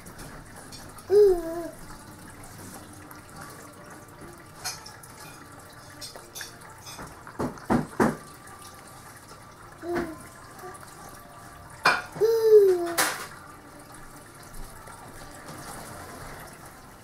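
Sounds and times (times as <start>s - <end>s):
baby voice sound: 1.1s - 1.8s, 9.8s - 10.8s, 12.1s - 13.2s.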